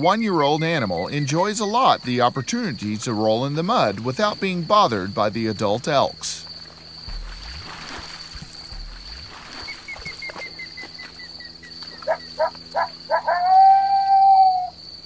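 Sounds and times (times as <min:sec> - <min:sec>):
long steady animal call: 0:09.7 - 0:15.0
wild animal yelping: 0:12.0 - 0:14.8.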